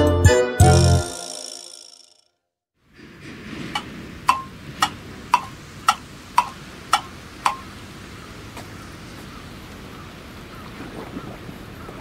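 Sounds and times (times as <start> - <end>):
steady outdoor hiss: 2.8 - 12.0
clock ticking: 3.8 - 7.7.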